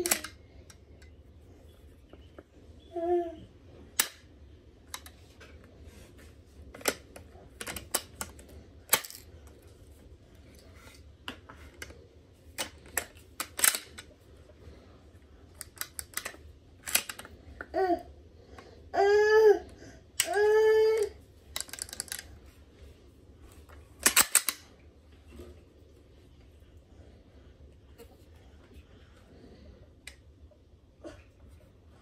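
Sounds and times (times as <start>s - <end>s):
rifle bolt metal clicks: 0.0s - 0.4s, 12.6s - 14.0s, 15.6s - 17.3s, 24.0s - 24.7s.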